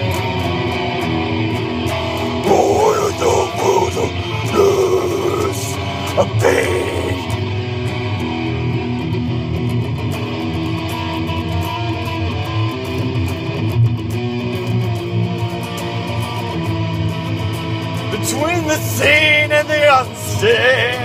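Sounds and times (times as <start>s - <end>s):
guitar playing chords: 0.0s - 21.0s.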